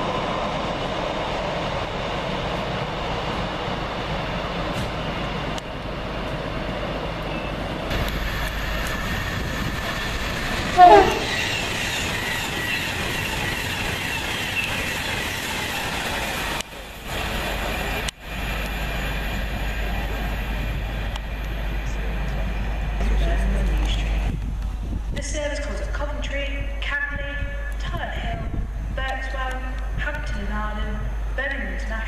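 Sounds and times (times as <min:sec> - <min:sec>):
passenger train passing at speed: 0:00.0 - 0:32.0
two-tone train horn blast: 0:10.7 - 0:11.6.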